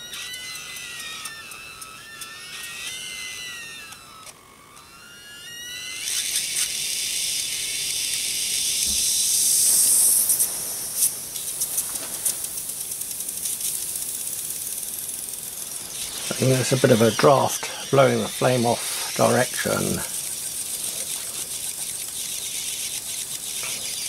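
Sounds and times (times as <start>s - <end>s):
steam hissing: 8.5s - 24.0s.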